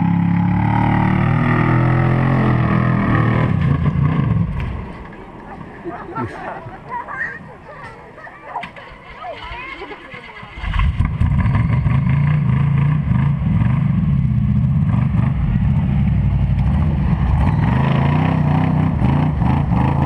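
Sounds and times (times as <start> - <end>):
engine revving loudly: 0.0 - 4.6, 16.6 - 20.0.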